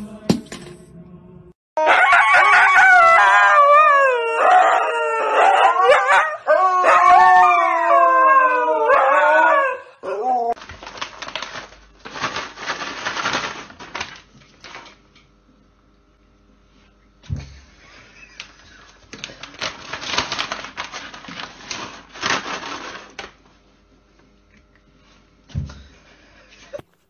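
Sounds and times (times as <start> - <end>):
dog howling: 1.8 - 10.6
noisy rustling and clatter: 10.6 - 15.1, 18.2 - 23.5.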